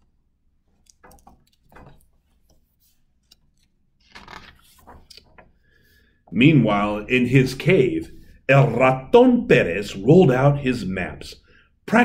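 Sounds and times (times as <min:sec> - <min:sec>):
paper page turning: 0:01.0 - 0:05.6.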